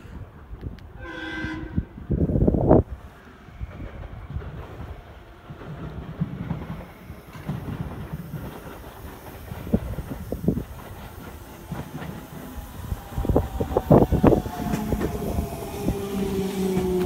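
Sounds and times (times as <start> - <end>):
electric train rumbling: 0.0 - 17.0
wheels clicking over rail joints: 3.7 - 17.0.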